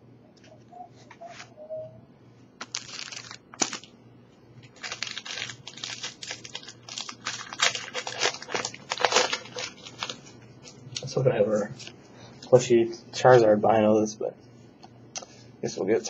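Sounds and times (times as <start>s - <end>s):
foil wrapper crinkling and tearing: 2.6s - 4.0s, 4.6s - 11.2s.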